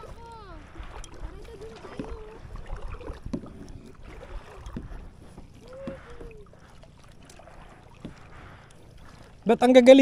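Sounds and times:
water dripping off paddle: 0:00.0 - 0:09.5
water sloshing: 0:00.0 - 0:10.0.

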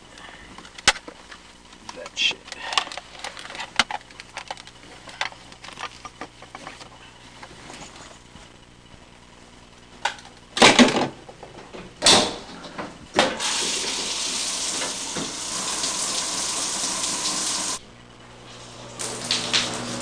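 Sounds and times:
shower water spraying: 0:13.4 - 0:17.8, 0:18.6 - 0:20.0.

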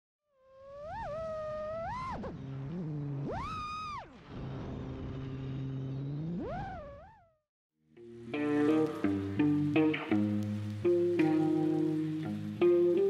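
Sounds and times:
drone motors whining: 0:00.8 - 0:06.9.

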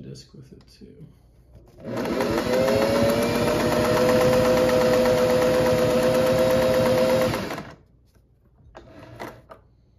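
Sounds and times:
sewing machine stitching: 0:01.8 - 0:07.8.

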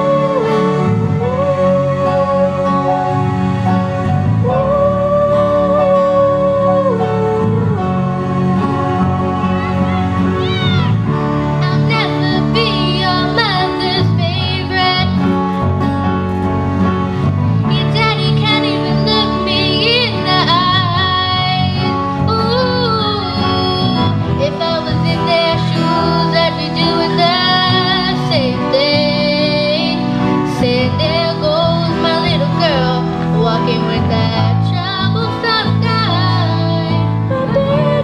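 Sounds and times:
acoustic guitar chords: 0:00.0 - 0:38.0
keyboard chords: 0:00.0 - 0:38.0
girls singing pop song: 0:11.6 - 0:15.4, 0:17.7 - 0:38.0.

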